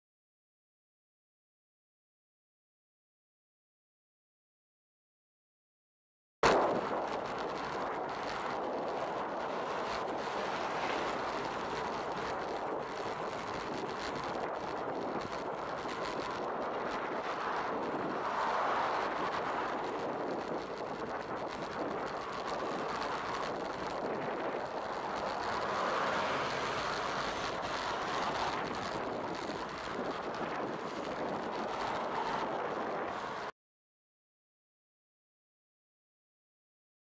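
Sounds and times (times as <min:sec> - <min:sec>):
road traffic: 0:06.4 - 0:33.5
wind on microphone: 0:06.4 - 0:33.5
bus passing: 0:07.2 - 0:14.3, 0:15.2 - 0:33.5.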